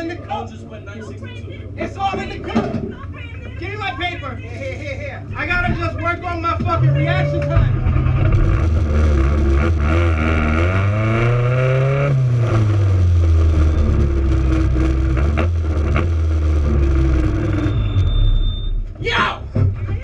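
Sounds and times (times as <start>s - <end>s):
car engine revving: 5.5s - 18.5s.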